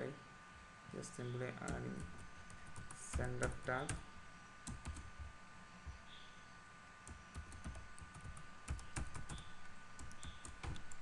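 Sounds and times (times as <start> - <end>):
keyboard keys clicking: 4.7 - 5.1, 7.1 - 11.0.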